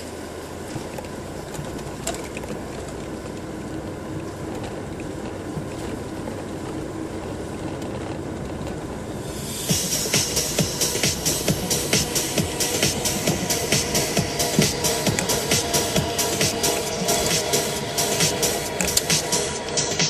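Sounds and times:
car interior rumble and hiss: 0.0s - 20.0s
electronic dance music: 9.2s - 20.0s.

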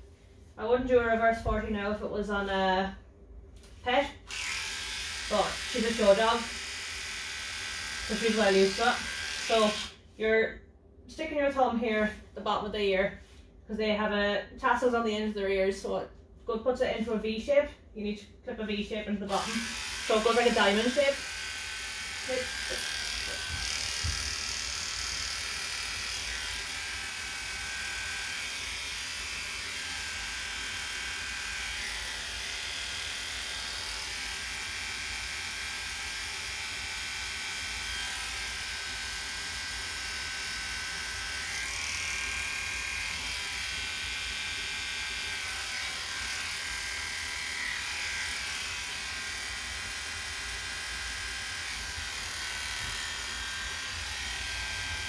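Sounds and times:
electric clippers buzzing: 4.2s - 10.0s, 19.3s - 55.0s.

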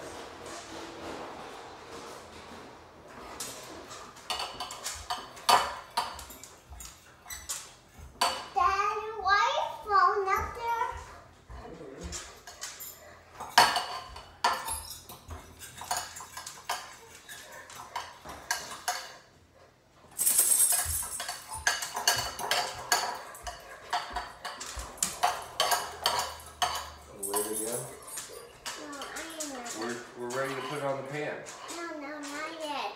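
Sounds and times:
utensil clinking against bowl: 12.1s - 19.3s, 20.2s - 32.6s.

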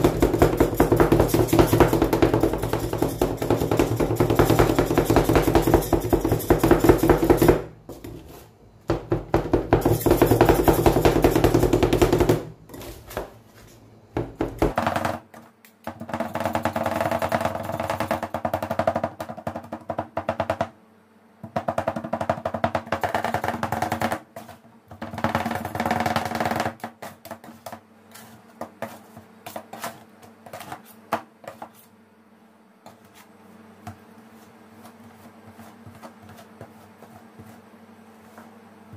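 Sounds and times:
spatula scraping: 7.9s - 8.6s, 24.3s - 24.7s, 27.0s - 32.0s, 32.8s - 38.6s.

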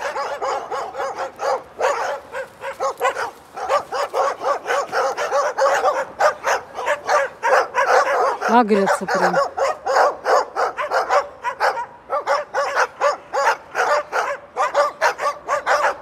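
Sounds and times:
dogs barking aggressively: 0.0s - 16.0s.

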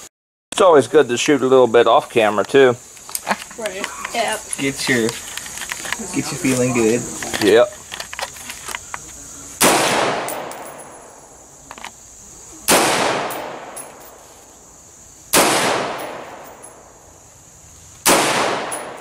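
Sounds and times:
rifle shots echoing: 9.6s - 11.2s, 12.7s - 14.0s, 15.3s - 16.9s, 18.0s - 19.0s.

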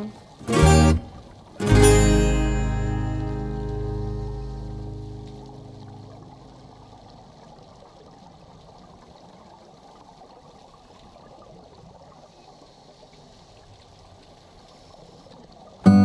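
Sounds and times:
underwater crackling gurgling hiss: 0.0s - 15.9s.

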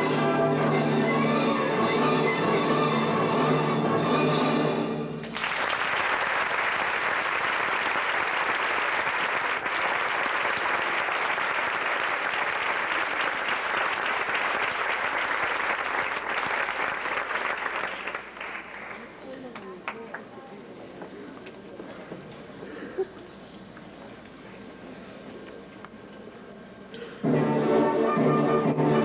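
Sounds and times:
orchestra playing: 0.0s - 5.3s, 27.2s - 29.0s
audience applauding: 5.2s - 19.2s.

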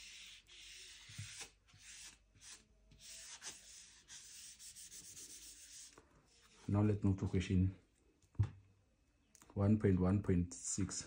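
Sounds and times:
eraser rubbing on whiteboard: 0.0s - 6.5s.

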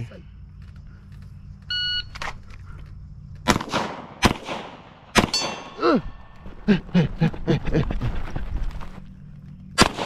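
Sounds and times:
gunshots: 3.4s - 5.8s, 9.8s - 10.0s.

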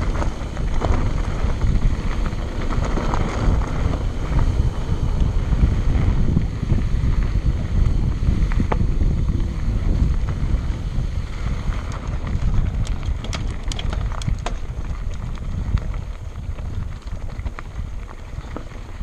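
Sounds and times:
clicks and rattles over stones: 0.0s - 4.3s, 11.6s - 19.0s
tyres rumbling on dirt trail: 0.0s - 19.0s
wind buffeting microphone: 0.0s - 19.0s.

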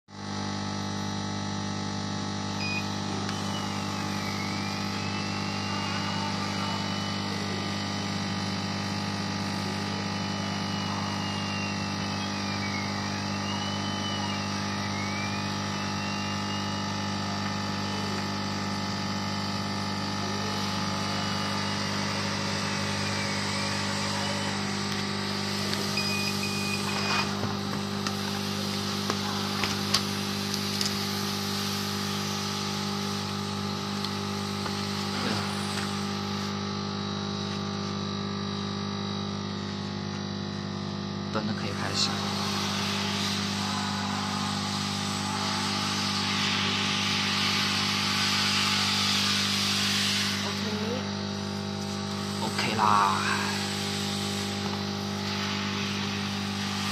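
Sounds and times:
machine hum: 0.1s - 56.9s
cutting head whine: 0.3s - 56.9s.

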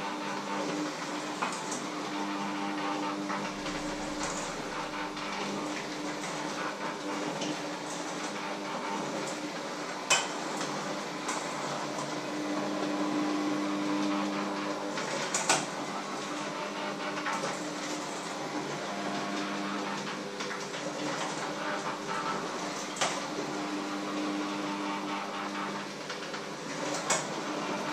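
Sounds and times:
steady low hum: 3.4s - 6.0s.

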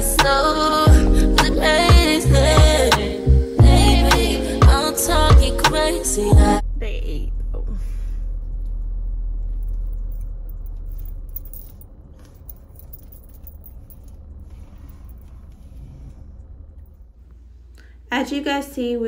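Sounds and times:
car rumble inside cabin: 6.6s - 17.6s.

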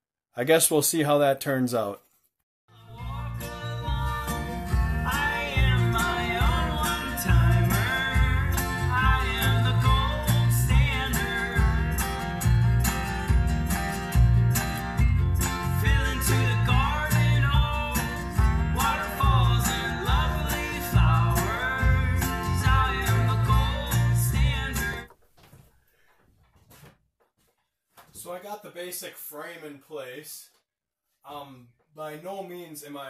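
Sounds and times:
country music with guitar: 2.7s - 25.1s.

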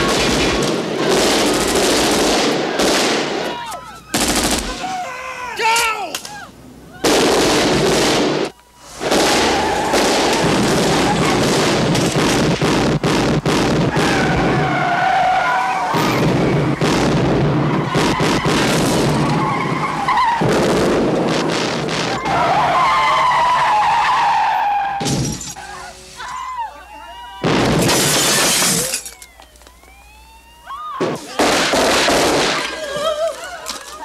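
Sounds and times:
gunshots: 0.0s - 5.0s, 7.0s - 14.8s, 15.8s - 22.3s, 31.0s - 32.8s
car engines: 8.4s - 26.2s
tyres squealing: 14.0s - 16.8s, 17.6s - 20.5s.

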